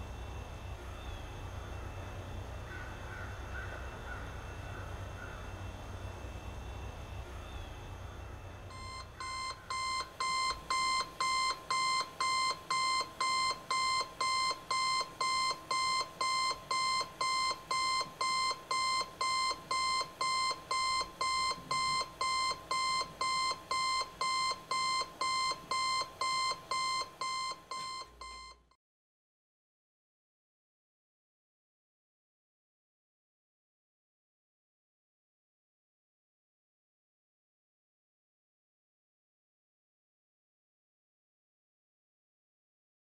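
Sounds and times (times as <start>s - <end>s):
alarm clock beeping: 8.7s - 28.6s.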